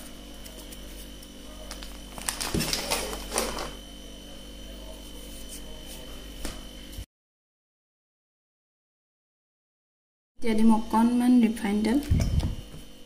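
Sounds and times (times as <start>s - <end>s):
steady low hum: 0.0s - 7.1s.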